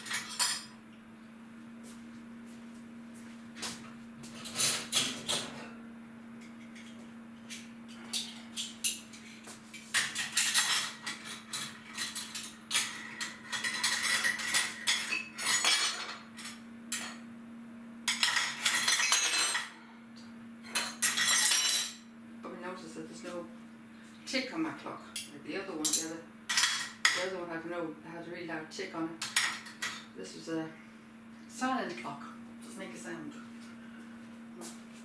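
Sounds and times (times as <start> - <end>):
faint steady hum: 0.0 - 35.0
crockery and cutlery clattering: 10.0 - 16.3, 18.1 - 19.7, 20.7 - 22.0.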